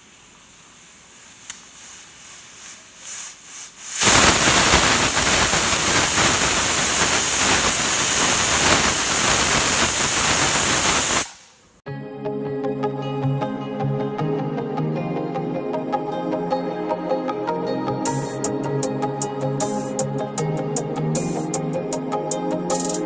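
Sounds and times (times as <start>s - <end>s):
pressure cooker whistle hissing: 3.9s - 11.6s.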